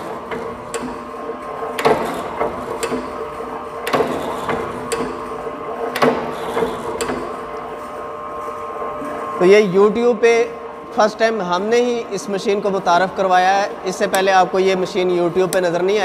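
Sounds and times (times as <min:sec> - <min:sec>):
stamping press motor hum: 0:00.0 - 0:09.4.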